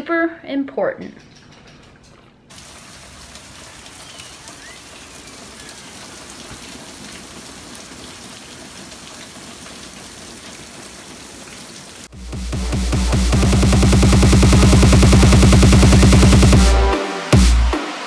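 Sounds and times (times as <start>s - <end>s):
rain on pavement and pool: 2.5s - 12.2s.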